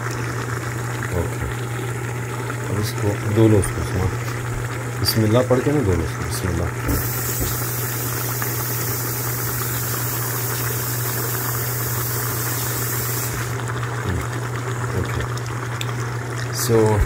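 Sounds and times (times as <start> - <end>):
meat sizzling in a pot: 6.8 - 15.4.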